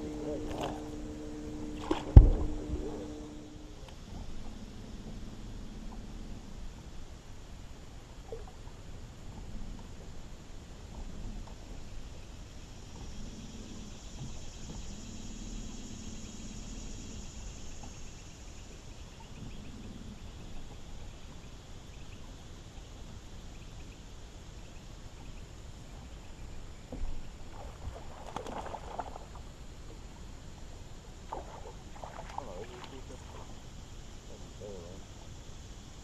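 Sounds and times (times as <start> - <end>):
low hum: 0.0 - 36.0
open-air noise: 0.0 - 36.0
fish splashing: 27.4 - 29.4, 31.3 - 33.6.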